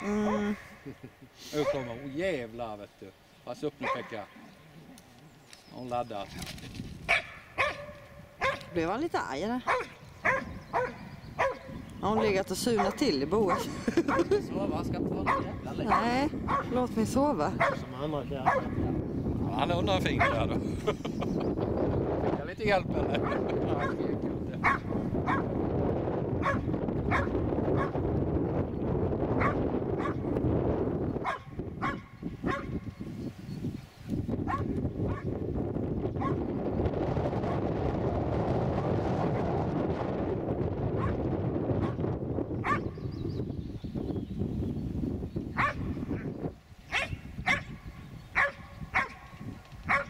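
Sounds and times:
dog barking: 1.6s - 2.0s, 3.8s - 4.3s, 7.1s - 8.8s, 9.6s - 14.4s, 15.2s - 16.8s, 17.5s - 18.9s, 20.2s - 20.5s, 23.2s - 24.0s, 24.6s - 25.5s, 26.4s - 28.0s, 29.4s - 30.2s, 31.2s - 32.8s, 34.5s - 35.3s, 36.2s - 36.4s, 41.0s - 41.2s, 42.6s - 42.9s, 45.6s - 45.9s, 46.9s - 47.8s, 48.4s - 50.0s.

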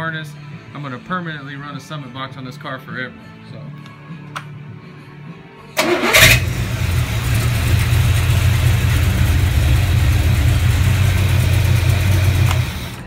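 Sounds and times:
car engine cranking and idling: 5.8s - 13.0s.

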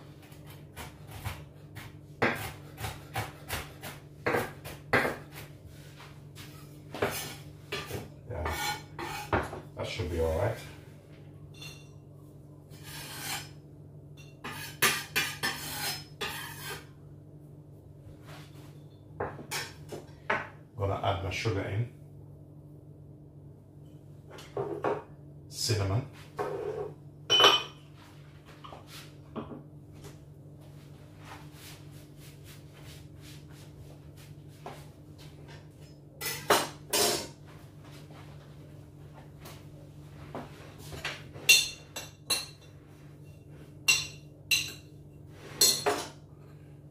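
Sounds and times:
knife scraping on wooden board: 7.0s - 9.5s, 12.7s - 13.6s, 14.4s - 16.9s
dishes and utensils clinking: 11.5s - 12.0s, 26.6s - 27.9s, 41.4s - 44.9s, 45.5s - 46.2s
dishes clattering: 26.5s - 27.8s, 45.6s - 46.2s.

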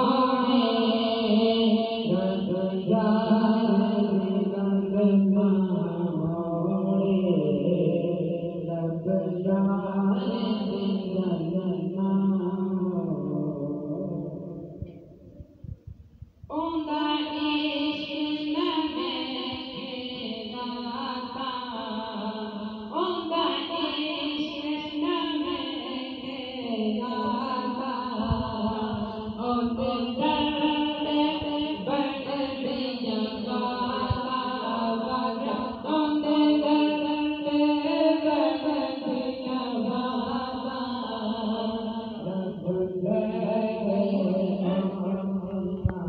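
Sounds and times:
man singing into a microphone: 0.0s - 14.8s, 22.9s - 46.0s.

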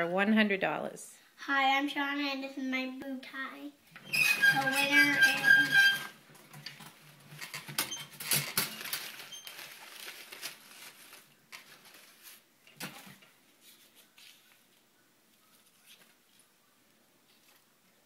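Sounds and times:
paper tickets rustling in metal drum: 4.0s - 13.2s
paper crinkling: 4.3s - 17.8s.

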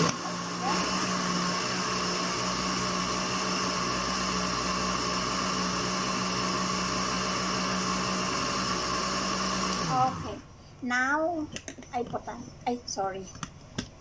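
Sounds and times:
blender running: 0.0s - 10.5s.

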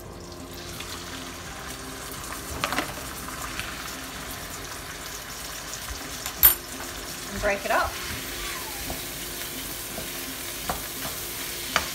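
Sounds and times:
meat sizzling in hot oil: 0.0s - 11.9s.

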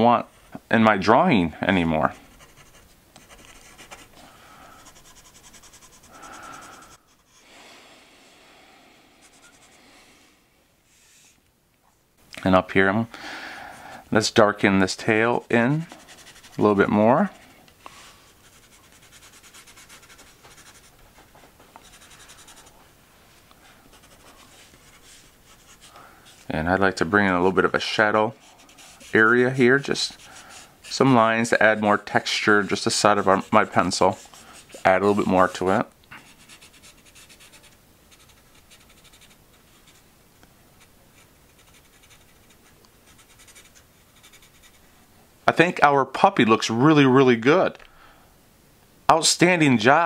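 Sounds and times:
pencil scratching on paper: 2.2s - 4.1s, 4.8s - 7.4s, 9.2s - 9.8s, 15.4s - 16.6s, 18.3s - 21.0s, 21.8s - 22.8s, 23.9s - 26.5s, 27.8s - 40.0s, 40.8s - 44.8s.

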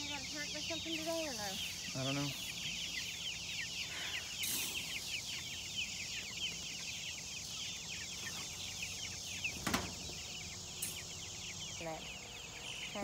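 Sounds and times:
chicks peeping: 0.0s - 13.0s.

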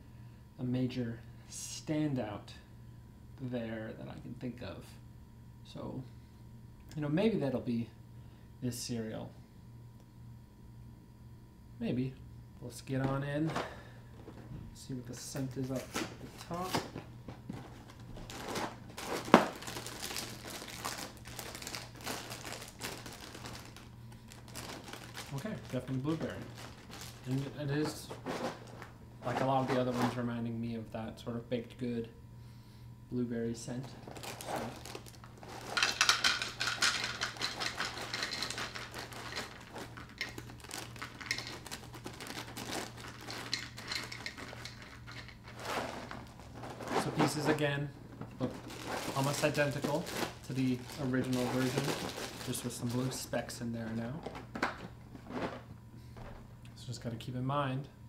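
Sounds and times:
plastic bag crinkling: 17.6s - 30.2s, 33.8s - 53.3s.

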